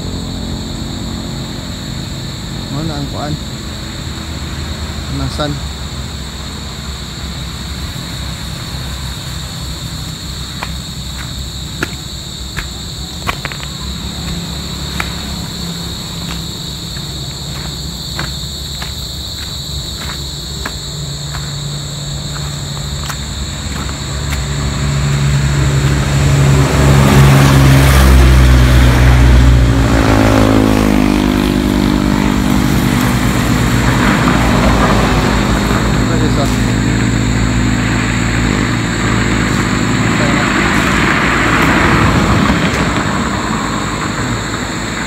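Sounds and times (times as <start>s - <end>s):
high insect buzz: 0.0s - 45.0s
footsteps crackling on twigs: 9.3s - 26.0s
motorcycle engine approaching: 23.7s - 45.0s.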